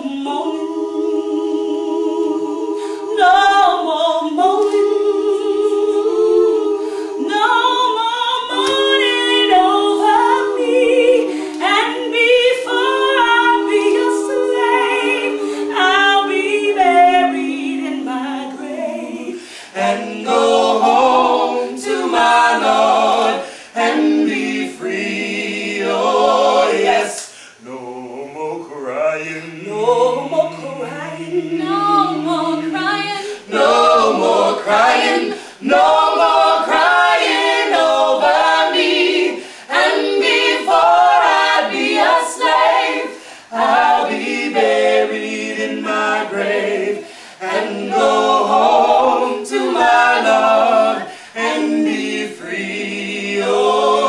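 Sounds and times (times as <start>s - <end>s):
group singing unaccompanied: 0.0s - 54.0s.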